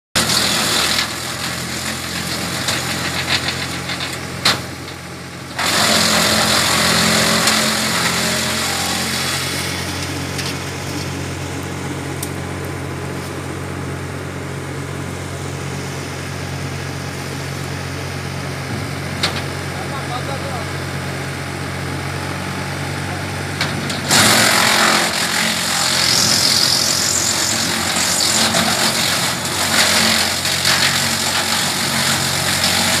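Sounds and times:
engine and chipper drone: 0.2s - 33.0s
wood chipper shredding branches: 0.2s - 33.0s.

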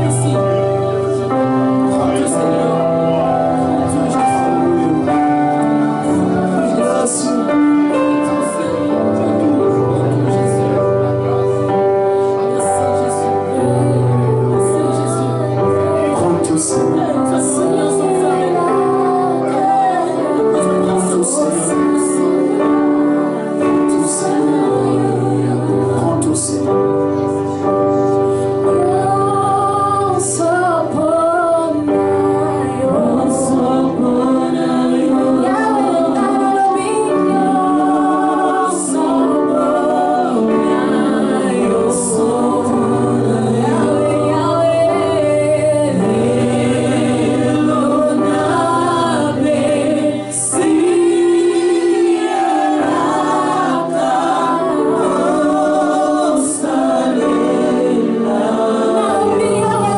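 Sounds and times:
held instrumental chords: 0.0s - 59.9s
woman singing: 12.4s - 22.8s, 28.6s - 55.1s, 58.3s - 59.9s.

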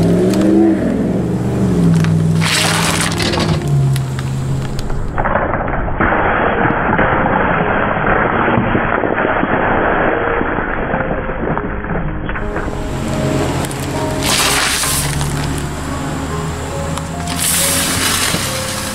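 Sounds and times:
low engine hum: 0.0s - 5.8s, 12.4s - 18.9s
plastic bottles crackling and popping: 1.9s - 15.8s, 16.9s - 18.9s
liquid spraying hiss: 17.3s - 18.9s.

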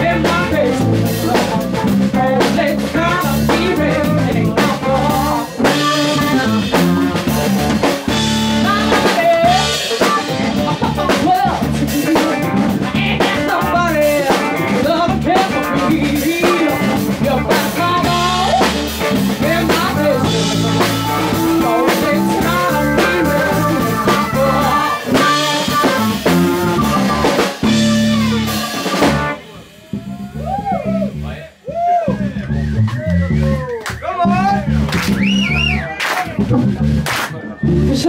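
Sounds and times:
blues band playing live: 0.0s - 38.0s
electric guitar lead notes: 5.6s - 30.4s.

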